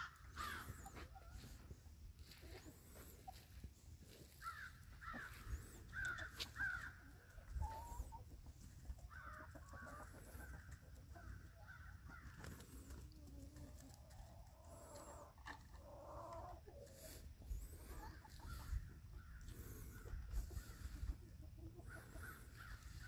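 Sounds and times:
hens squawking: 0.0s - 13.4s, 14.3s - 23.0s.

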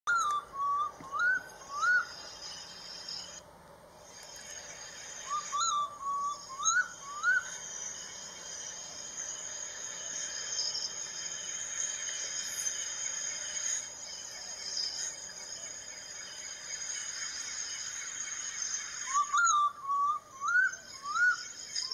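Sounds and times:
owl whistled calls: 0.1s - 3.4s, 4.9s - 8.4s, 18.2s - 21.9s
insects hissing: 0.3s - 3.4s, 4.0s - 21.9s.

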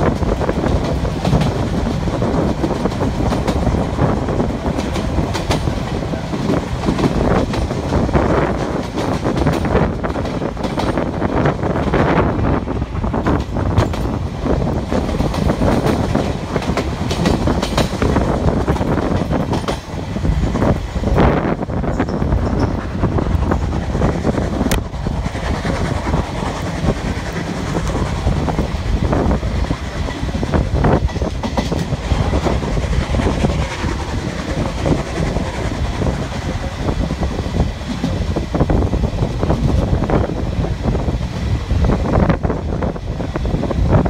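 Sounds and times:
train rushing noise: 0.0s - 44.0s
wheels clicking over rail joints: 0.0s - 44.0s.

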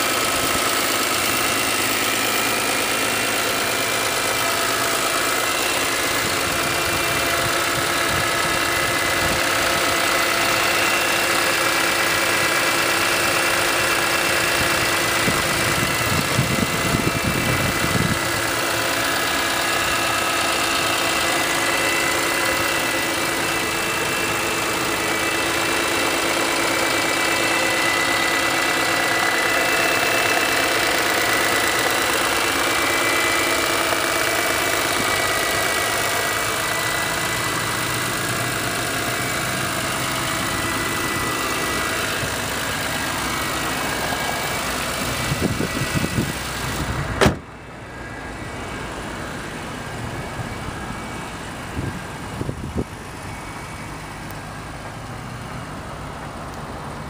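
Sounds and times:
car engine idling: 0.0s - 57.0s
hood slamming shut: 45.5s - 47.6s.

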